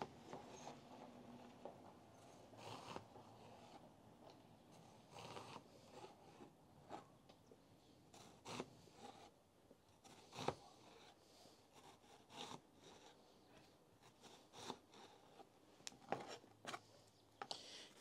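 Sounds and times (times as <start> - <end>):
knife cutting onion on board: 8.2 - 9.3, 10.0 - 11.1.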